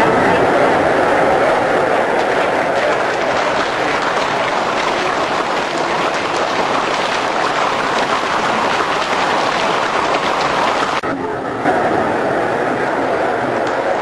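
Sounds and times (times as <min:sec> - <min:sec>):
audience applauding: 0:01.2 - 0:11.0.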